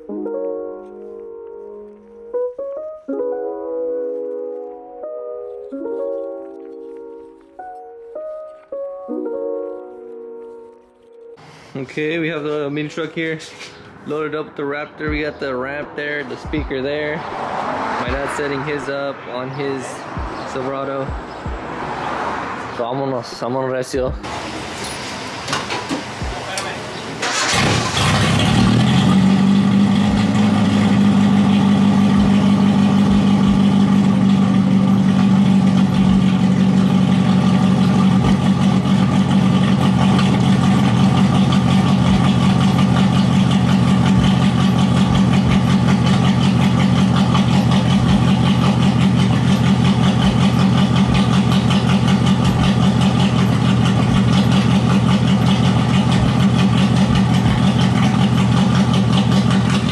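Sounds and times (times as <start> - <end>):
truck engine idling: 24.2 - 59.9.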